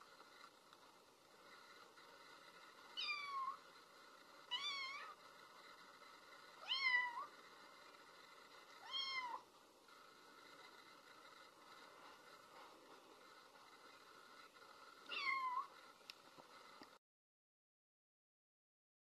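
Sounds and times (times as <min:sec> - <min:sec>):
cat meowing: 0:08.8 - 0:09.4, 0:15.1 - 0:15.7.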